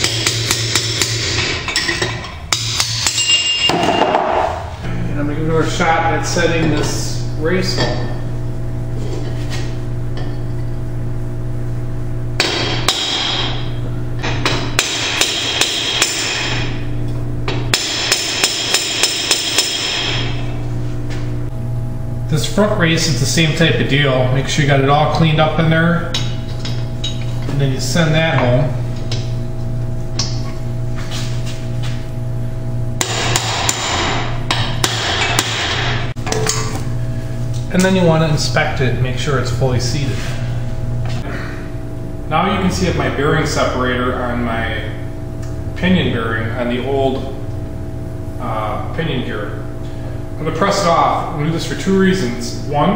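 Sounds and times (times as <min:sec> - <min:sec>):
hammer striking metal: 0:00.0 - 0:04.7, 0:12.4 - 0:16.8, 0:17.5 - 0:20.5, 0:33.0 - 0:36.8
steady low hum: 0:00.0 - 0:52.9.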